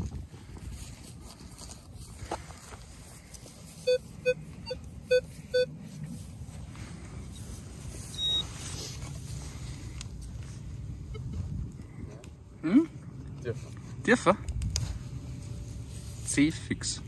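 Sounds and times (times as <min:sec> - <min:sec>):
metal detector beeps: 0:03.8 - 0:05.8, 0:08.1 - 0:08.5.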